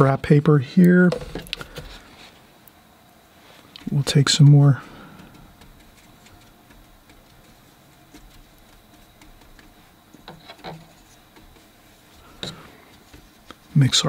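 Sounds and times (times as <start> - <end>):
brush tapping and scrubbing palette: 3.8 - 14.0.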